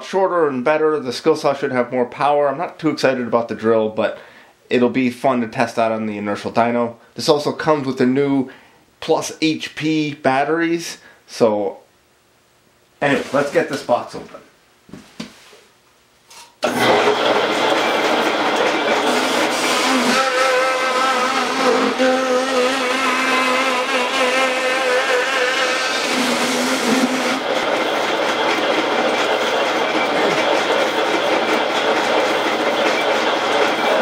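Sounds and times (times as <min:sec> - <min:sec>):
bandsaw running: 0:16.4 - 0:34.0
blade cutting cardboard whine: 0:16.6 - 0:34.0.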